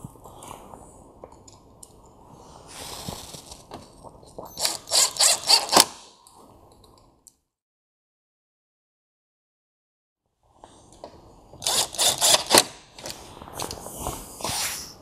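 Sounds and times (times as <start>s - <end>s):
drill-driver spinning: 4.5s - 6.0s, 11.6s - 12.7s
drill clutch clicks: 4.6s - 5.9s, 11.6s - 12.7s.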